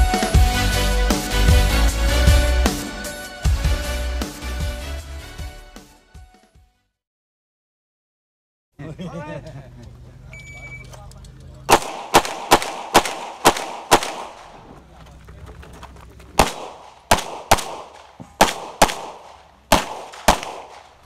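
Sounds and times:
shot timer beep: 0:10.4 - 0:10.9
pistol fired rapidly: 0:11.7 - 0:14.7, 0:16.4 - 0:21.0.

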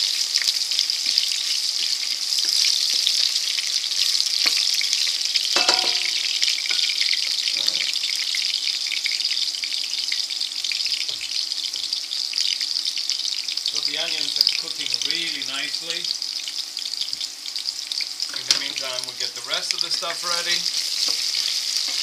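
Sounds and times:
onion and garlic sizzling in oil: 0:00.0 - 0:22.0
stirring knocks in pot: 0:05.6 - 0:06.9.

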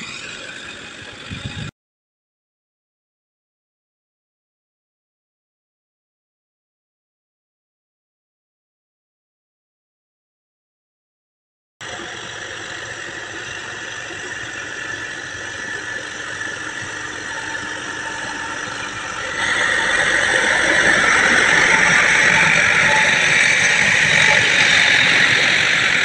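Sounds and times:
tractor engine under load: 0:11.8 - 0:26.0
rotavator churning mud: 0:12.0 - 0:26.0.

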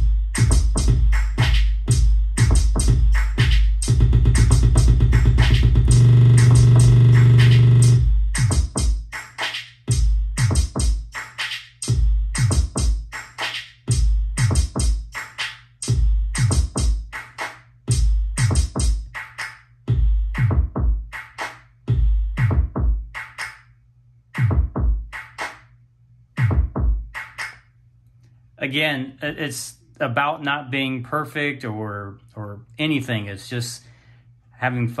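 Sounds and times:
deep kick drum: 0:00.0 - 0:09.0, 0:19.9 - 0:21.1, 0:21.9 - 0:23.1, 0:24.4 - 0:25.1, 0:26.4 - 0:27.1
electronic drum machine beat: 0:00.0 - 0:23.6, 0:24.4 - 0:25.6, 0:26.4 - 0:27.6.

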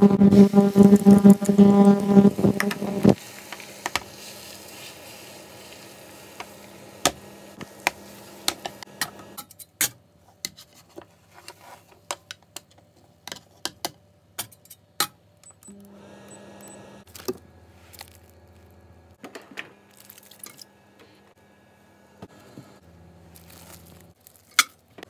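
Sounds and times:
egg sizzling in a pan: 0:00.0 - 0:09.4
steady low hum: 0:00.0 - 0:09.4.

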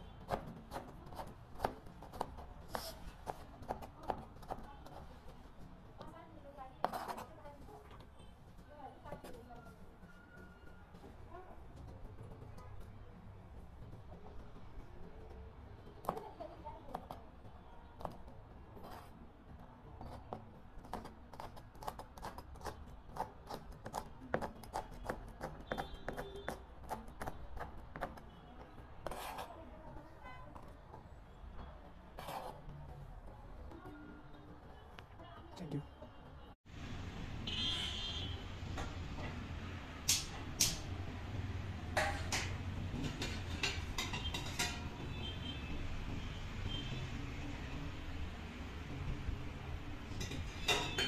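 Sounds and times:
knife chopping on plastic board: 0:00.2 - 0:02.5, 0:20.1 - 0:29.2
ladle and lid clinking on pots: 0:42.0 - 0:44.9.

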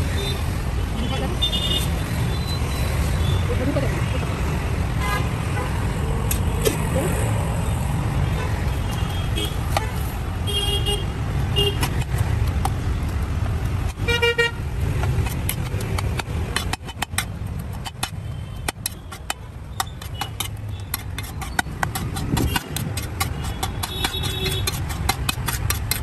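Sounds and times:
metal spatula scraping griddle: 0:15.1 - 0:26.0.

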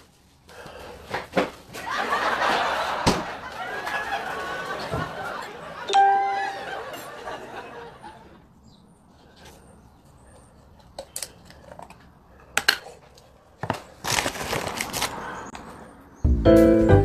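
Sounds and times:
music with a beat: 0:16.3 - 0:17.0.

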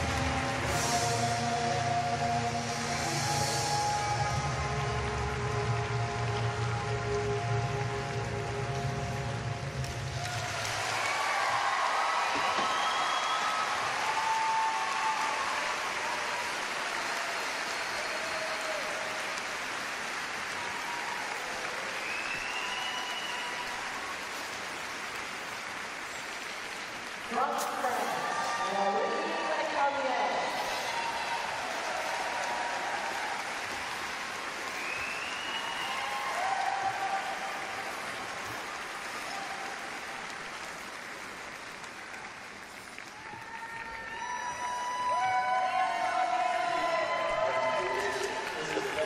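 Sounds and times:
crowd applauding: 0:00.0 - 0:49.0.

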